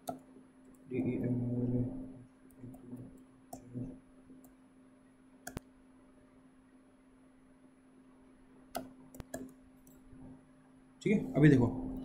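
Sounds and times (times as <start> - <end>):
faint low hum: 0.0 - 12.0
computer keyboard keystrokes: 8.8 - 10.0.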